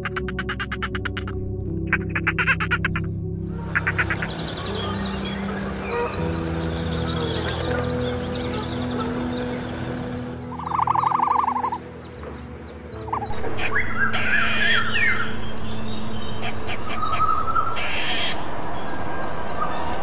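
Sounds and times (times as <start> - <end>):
pulsed chirping trill: 3.6 - 12.0.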